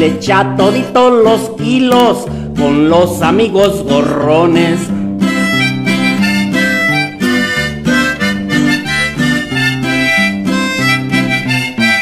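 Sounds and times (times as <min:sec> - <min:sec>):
harmonica melody: 0:00.0 - 0:01.2, 0:03.9 - 0:12.0
bass: 0:00.0 - 0:12.0
guitar: 0:00.0 - 0:12.0.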